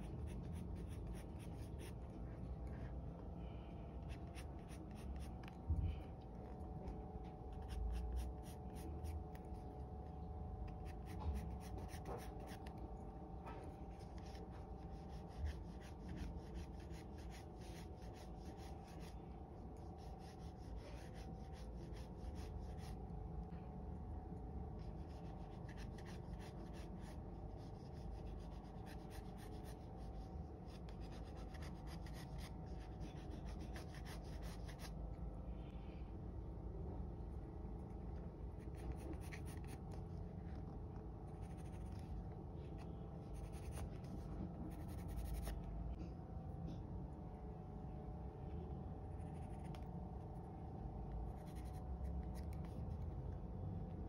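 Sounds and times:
pencil scratching on paper: 0.0 - 2.1, 4.0 - 5.5, 7.5 - 9.6, 10.7 - 12.8, 13.9 - 19.2, 19.8 - 23.0, 24.8 - 34.9, 38.6 - 39.8, 41.4 - 42.0, 43.3 - 45.6, 51.3 - 52.8.

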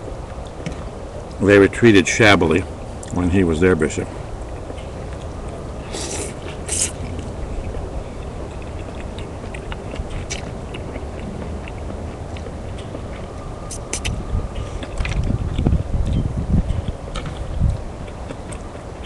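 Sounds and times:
steady low hum: 0.0 - 19.0
soft chewing: 4.0 - 18.9.

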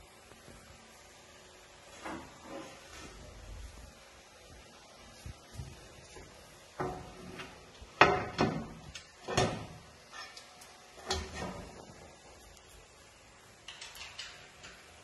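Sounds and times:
display panels knocking and clattering: 8.0 - 9.8.

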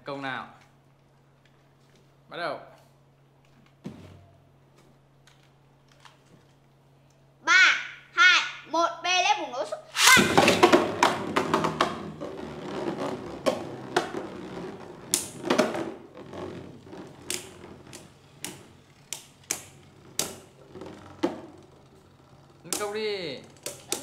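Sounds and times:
spinning tops clacking together: 9.9 - 12.0
spinning tops whirring: 9.9 - 24.0.

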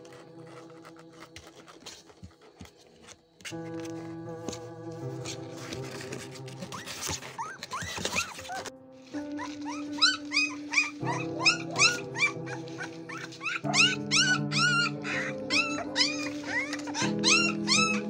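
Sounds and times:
music of held chords: 0.0 - 18.0
puppy crying in high squeals: 9.3 - 18.0.

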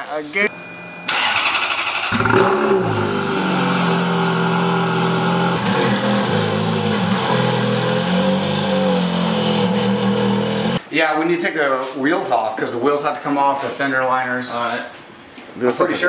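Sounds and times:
car engine starting and idling: 1.0 - 10.8
starter motor whirring: 1.1 - 10.8.

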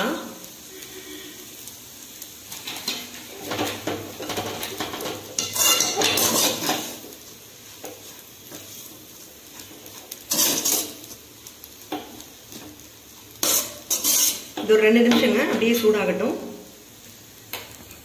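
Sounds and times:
metal spatula scraping metal pan: 2.7 - 7.0, 10.2 - 11.0, 13.4 - 15.4.

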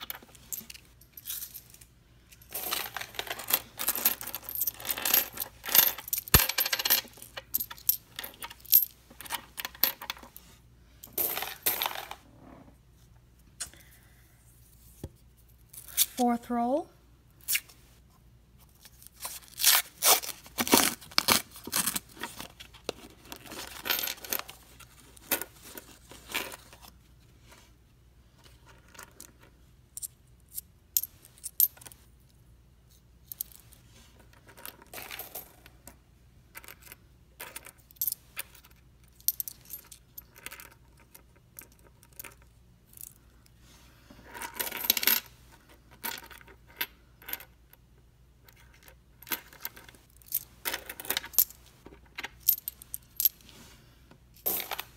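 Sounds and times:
coins clattering onto wooden table: 0.0 - 10.4, 11.1 - 12.2, 23.5 - 24.6, 34.2 - 43.2, 44.3 - 47.6, 48.5 - 53.4, 54.4 - 54.9
coins clicking together: 2.5 - 8.9
paper wrapper tearing and crinkling: 19.3 - 22.1.

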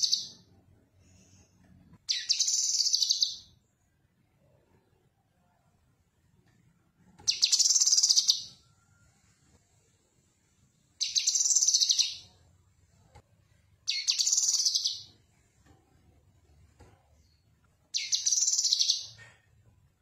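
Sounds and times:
bird chattering song: 2.1 - 3.5, 7.3 - 8.5, 11.0 - 12.3, 13.9 - 15.1, 17.9 - 19.2.

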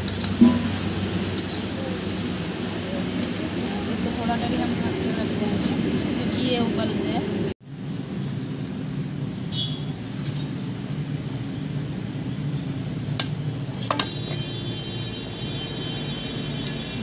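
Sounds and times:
curry boiling in a pot: 7.6 - 17.0
metal clinks against pot: 13.2 - 14.5.

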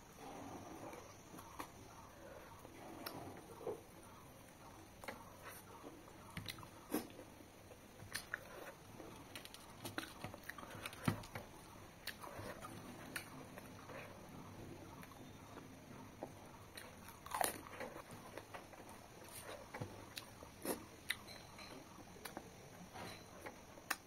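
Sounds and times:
person chewing food: 0.1 - 24.0.

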